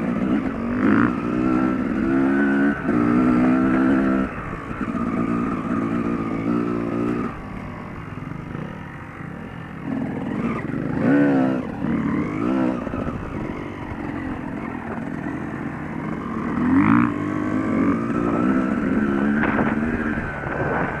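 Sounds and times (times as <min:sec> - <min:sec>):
dirt bike engine revving: 0:00.0 - 0:21.0.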